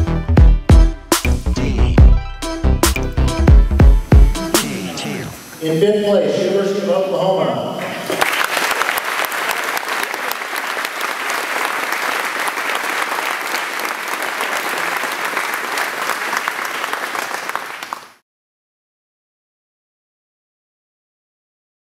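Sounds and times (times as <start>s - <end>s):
people applauding: 7.9s - 18.2s.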